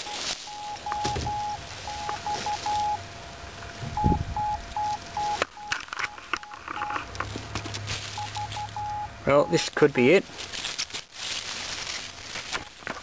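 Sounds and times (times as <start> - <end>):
morse code beeping: 0.0 - 3.1, 4.0 - 7.1, 8.1 - 10.0
leaves rustling: 0.0 - 13.0.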